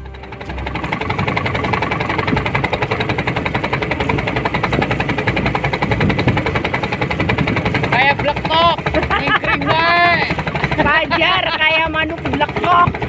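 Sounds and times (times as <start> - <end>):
boat engine chugging: 0.0 - 13.0.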